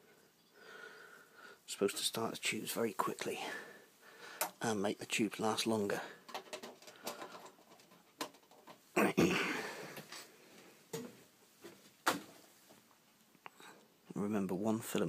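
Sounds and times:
handling clicks and knocks: 6.2 - 8.9.

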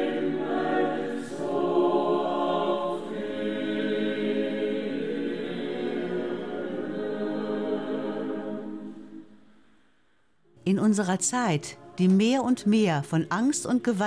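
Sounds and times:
choir singing: 0.0 - 9.7.

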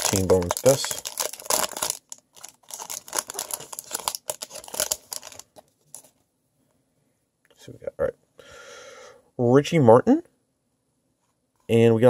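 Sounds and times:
wrapper crinkling and tearing: 0.0 - 6.1.

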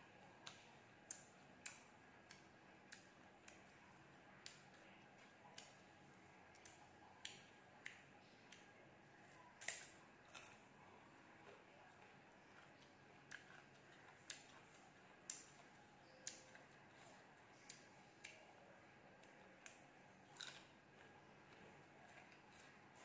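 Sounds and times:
chewing crisp fruit crunches: 6.5 - 18.5, 19.2 - 23.0.

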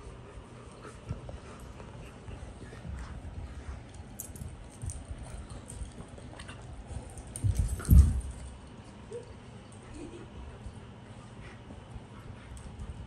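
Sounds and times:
dogs scuffling and bumping: 0.4 - 9.0.

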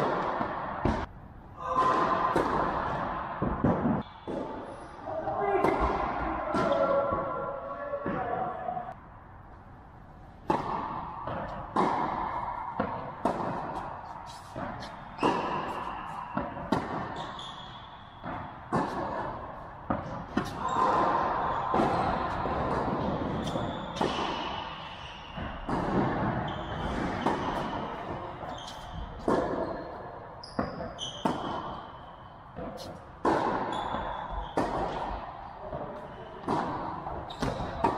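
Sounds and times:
tennis ball struck by rackets: 1.8 - 4.6, 10.4 - 17.5, 18.2 - 24.6, 25.4 - 29.8, 30.5 - 31.8, 32.6 - 37.9.

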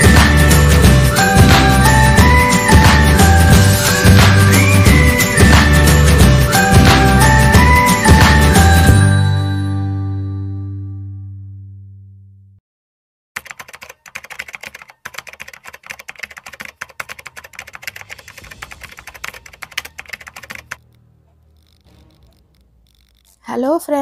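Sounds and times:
jingle chord: 0.0 - 11.1
keyboard typing clicks: 13.4 - 23.4.

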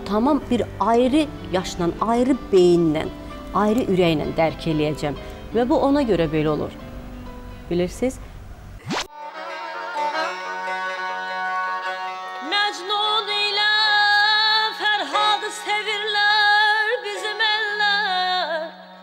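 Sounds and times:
string instruments drone: 9.0 - 13.2.

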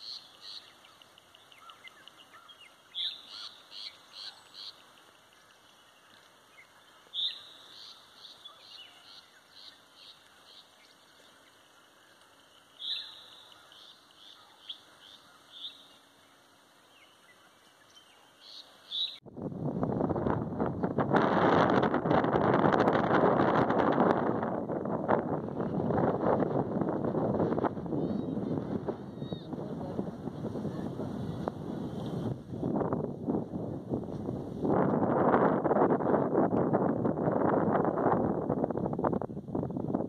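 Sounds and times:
songbird singing: 0.0 - 19.3, 27.7 - 32.3
wind rumble on microphone: 19.2 - 40.0.

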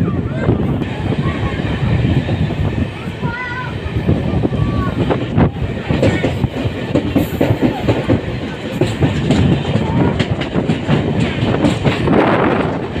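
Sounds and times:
train rumbling: 0.0 - 13.0
wheels clattering on rails: 0.0 - 13.0.

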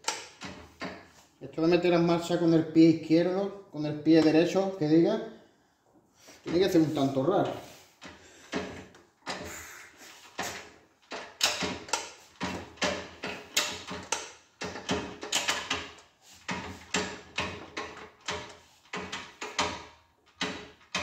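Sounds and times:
gearbox clicks and clunks: 0.0 - 1.2, 8.0 - 9.6, 10.2 - 21.0.

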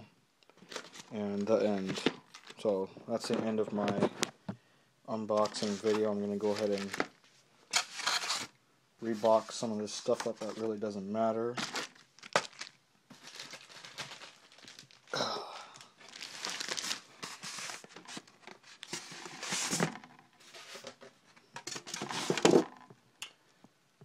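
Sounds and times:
plastic wrap crinkling: 0.6 - 4.2, 5.3 - 8.5, 11.6 - 19.8.

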